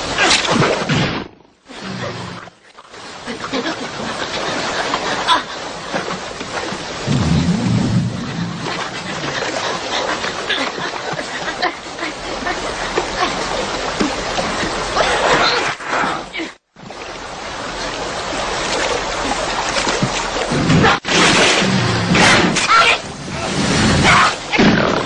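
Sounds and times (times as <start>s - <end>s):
river water rushing: 2.2s - 15.5s, 16.4s - 20.6s
low rumble: 7.0s - 9.7s.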